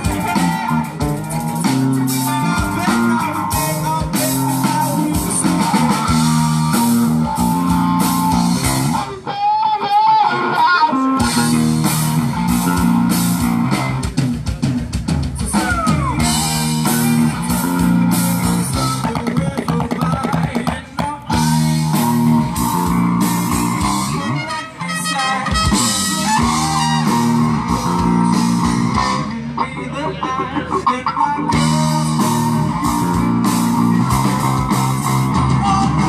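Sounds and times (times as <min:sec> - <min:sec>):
live rock band playing: 0:00.0 - 0:36.0
wavering guitar note: 0:21.6 - 0:36.0.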